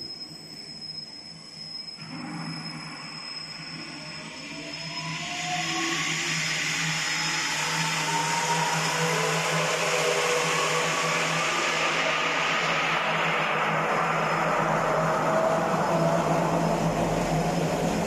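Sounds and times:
faint rising whine: 0.0 - 18.0.

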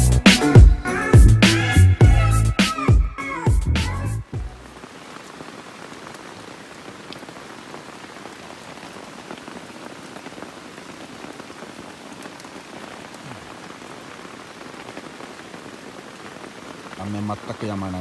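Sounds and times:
raindrops ticking: 4.3 - 18.0
steady rain hiss: 4.3 - 18.0.

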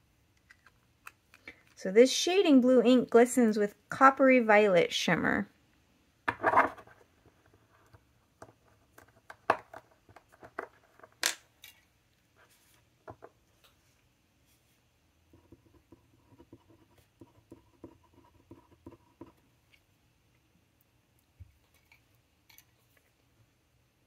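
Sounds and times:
glass pen tapping and scratching: 15.3 - 19.4.

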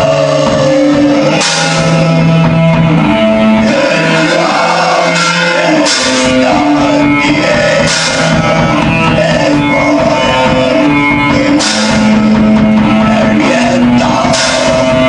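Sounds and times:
distorted electric guitars: 0.0 - 15.0
drum kit: 0.0 - 15.0
cymbal crashes: 1.4 - 2.4, 11.6 - 12.6.

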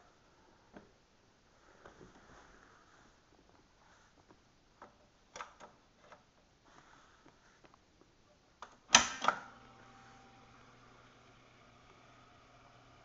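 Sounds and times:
sharp loud control click: 8.9 - 9.5.

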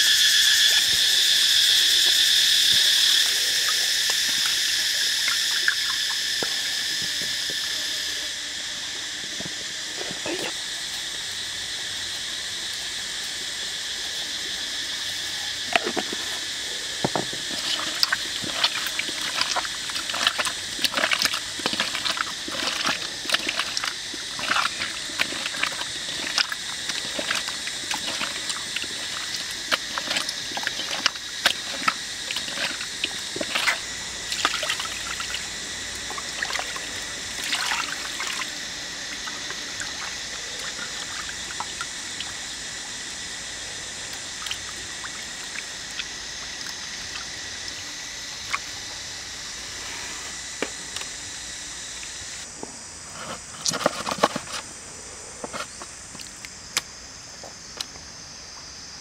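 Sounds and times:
water splashing and trickling: 17.1 - 38.5.

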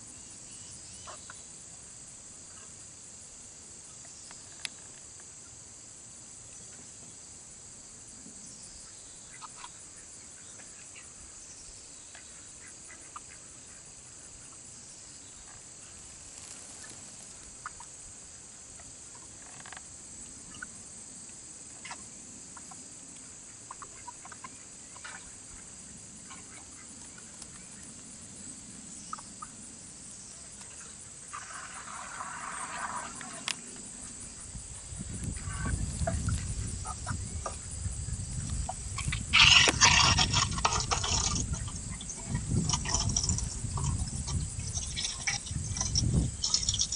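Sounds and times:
crickets and insects droning: 0.0 - 46.9
poultry clucking: 35.3 - 37.7, 38.6 - 46.9.

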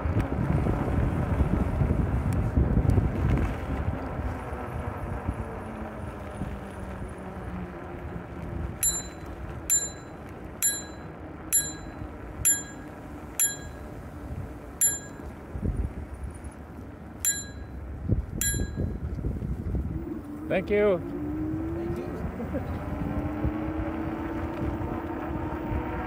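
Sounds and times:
wind buffeting microphone: 0.0 - 26.0
bicycle bell ringing: 8.8 - 14.0, 14.8 - 15.4, 17.2 - 17.8, 18.4 - 19.0.

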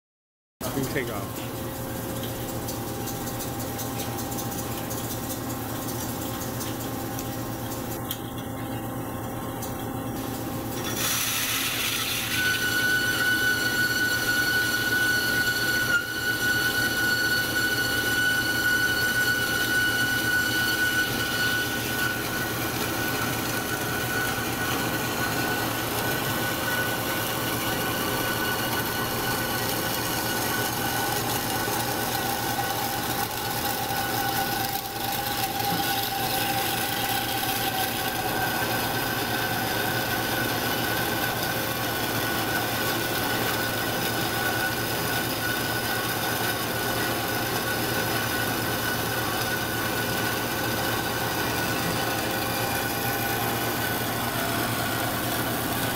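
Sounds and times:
high saw blade whine: 0.7 - 1.3, 10.8 - 55.9
band saw cutting steel: 10.8 - 55.9.

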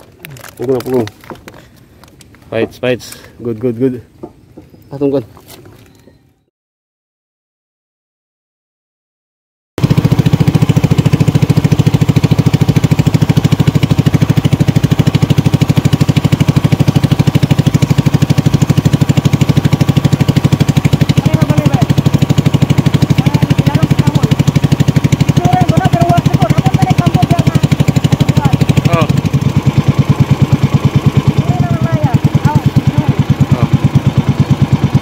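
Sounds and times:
small boat engine pulsing: 9.8 - 35.0.

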